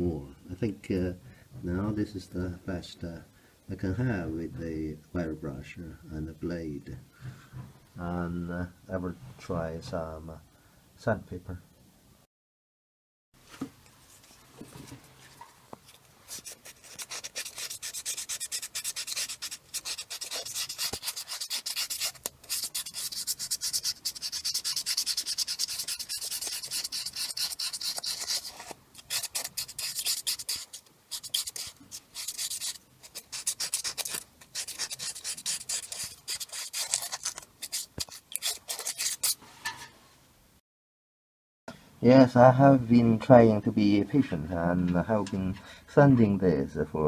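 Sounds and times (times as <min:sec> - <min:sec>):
sandpaper rubbing on metal: 0:16.3 - 0:39.4.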